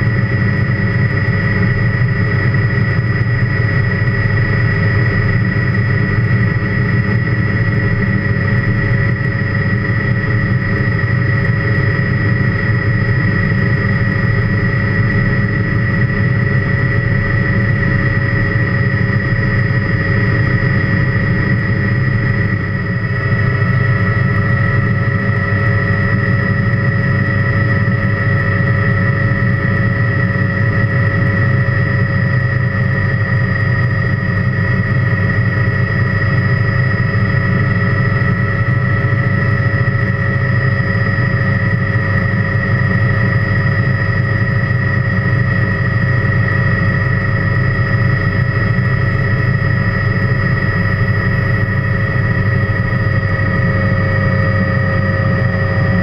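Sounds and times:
helicopter engine and rotor drone: 0:00.0 - 0:56.0
high engine whine: 0:00.0 - 0:56.0.

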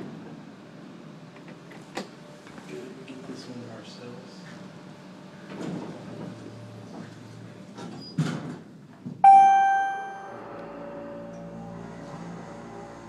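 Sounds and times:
elevator rumble: 0:04.7 - 0:13.0
elevator chime ding: 0:09.2 - 0:11.5.

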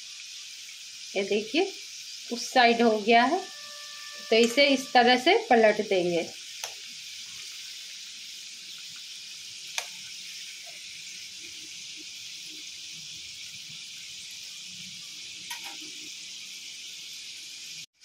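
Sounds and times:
food deep-frying in oil: 0:00.0 - 0:18.0
metal spoon clicking on pan: 0:15.5 - 0:15.8.

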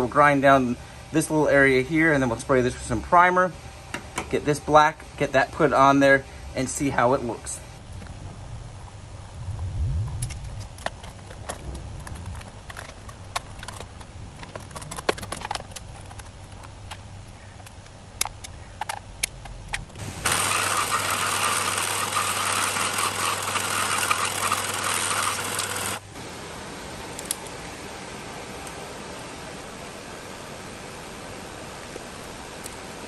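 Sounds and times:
belt sander running: 0:20.0 - 0:26.4.

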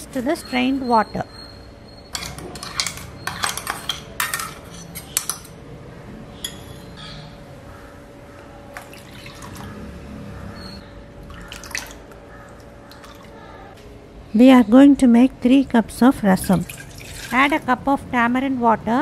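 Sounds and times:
water pouring into bowl: 0:16.6 - 0:17.4.

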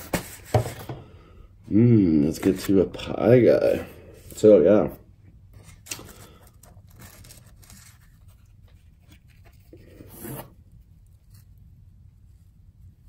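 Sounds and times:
pizza crust and cardboard rustling: 0:05.6 - 0:11.7.

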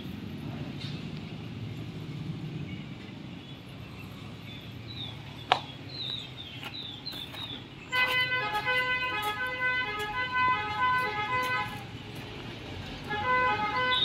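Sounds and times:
birds chirping: 0:01.7 - 0:09.2
loud vehicle horn: 0:07.9 - 0:11.9, 0:13.0 - 0:14.0.

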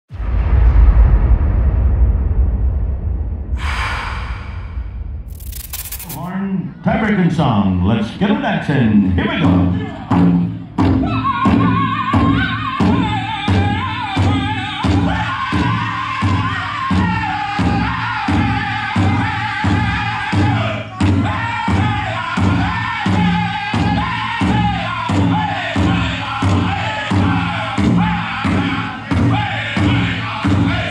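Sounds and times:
high-pitched men singing: 0:11.0 - 0:30.9.

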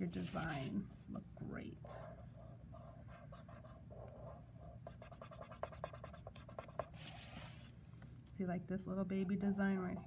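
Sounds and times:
marker scratching on paper: 0:00.1 - 0:00.8, 0:02.0 - 0:07.7.

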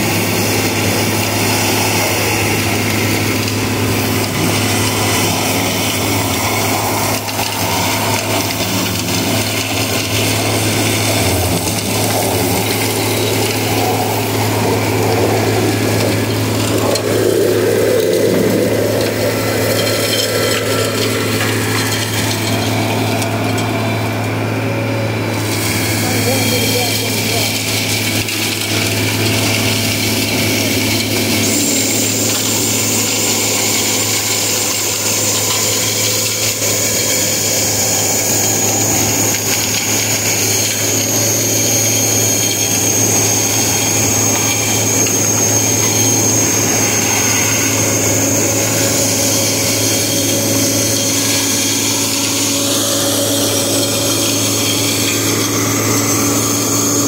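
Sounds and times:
high machine whine: 0:00.0 - 0:57.0
machine drone: 0:00.0 - 0:57.0.

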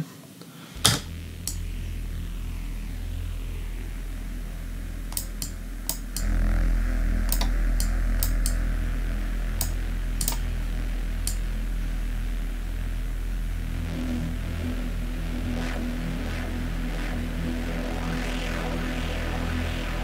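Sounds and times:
deep synth pad drone: 0:00.7 - 0:20.0
computer mouse clicks: 0:07.3 - 0:08.6, 0:09.6 - 0:10.4.

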